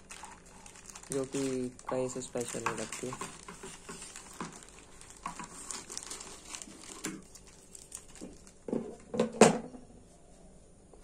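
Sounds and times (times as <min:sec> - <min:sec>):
scissors cutting plastic: 0:00.0 - 0:08.6
plastic crinkling: 0:00.0 - 0:09.1.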